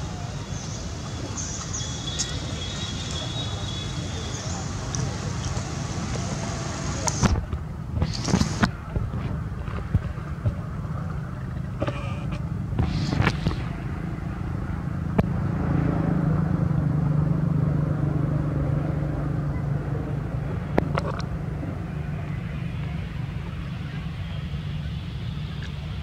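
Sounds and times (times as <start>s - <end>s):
vehicle engine passing by: 0.0s - 7.4s, 12.8s - 22.8s.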